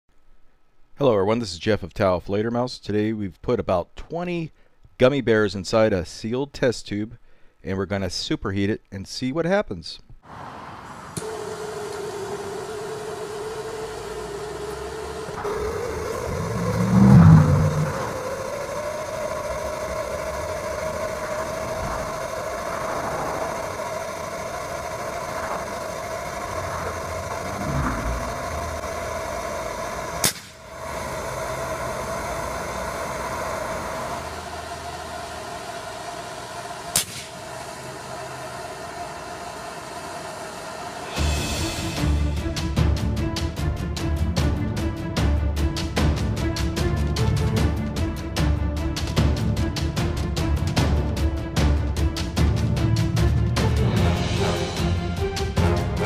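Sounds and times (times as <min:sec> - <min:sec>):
gas torch flame rushing: 0:10.3 - 0:42.4
gas torch click: 0:11.1 - 0:16.8, 0:28.8 - 0:30.9, 0:36.7 - 0:37.7
sharp pop: 0:30.2 - 0:30.6, 0:37.0 - 0:37.3.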